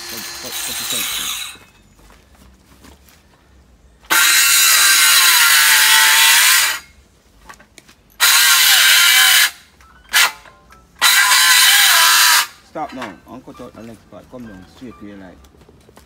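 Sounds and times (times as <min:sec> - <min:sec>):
power tool cutting: 0:00.0 - 0:01.6, 0:04.1 - 0:06.9, 0:08.2 - 0:09.6, 0:11.0 - 0:12.6.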